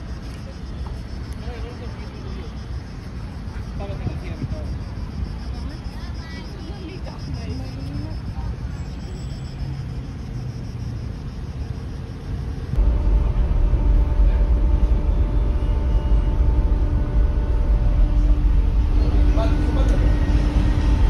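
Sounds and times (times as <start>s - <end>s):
ferry engine rumble: 0.0s - 21.0s
steady hum: 11.4s - 21.0s.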